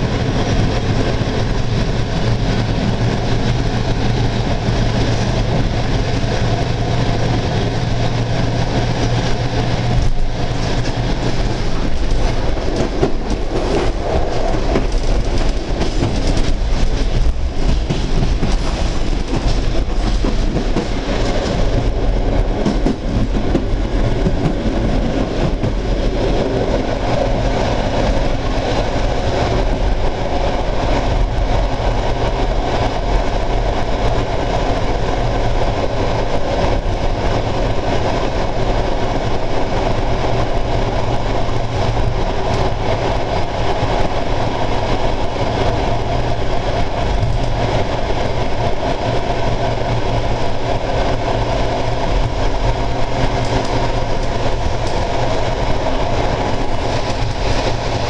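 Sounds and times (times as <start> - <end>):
train wheels clattering over rail joints: 0.0 - 34.2
train running noise: 0.0 - 58.0.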